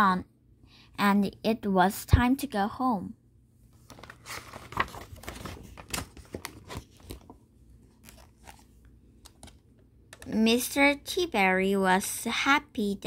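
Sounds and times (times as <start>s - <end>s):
paper page rustling: 3.7s - 9.6s.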